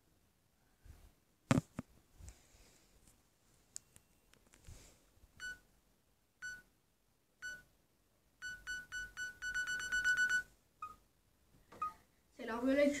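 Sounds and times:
self-timer beeps: 5.4s - 5.6s, 6.4s - 6.7s, 7.4s - 7.7s, 8.4s - 11.0s.

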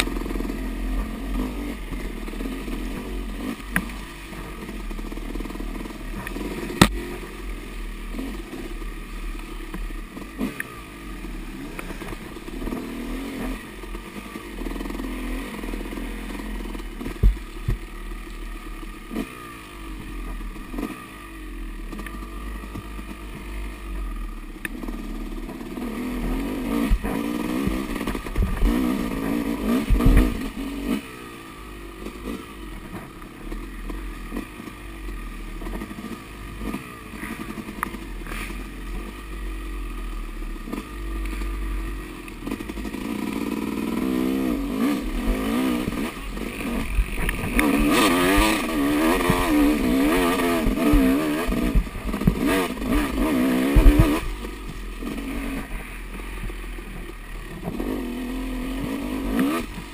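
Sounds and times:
dirt bike engine revving: 0.0s - 59.9s
bike clattering over bumps: 45.1s - 55.4s.

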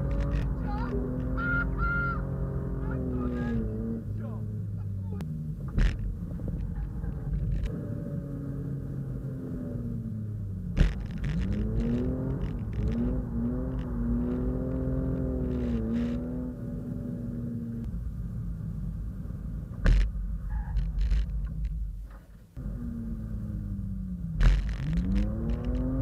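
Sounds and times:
car engine revving: 0.0s - 26.0s
sharp knocks: 10.8s - 11.4s, 19.8s - 20.1s, 24.4s - 25.7s.

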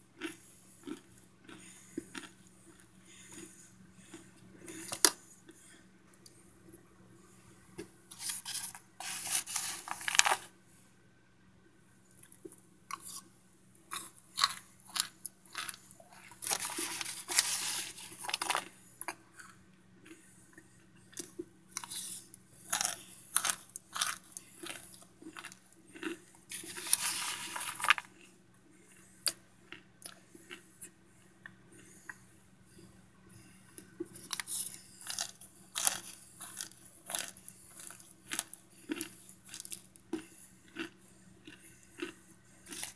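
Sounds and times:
dry crackly crunching chews: 0.2s - 6.4s, 8.1s - 10.5s, 13.9s - 20.2s, 21.1s - 31.6s, 34.0s - 42.9s.

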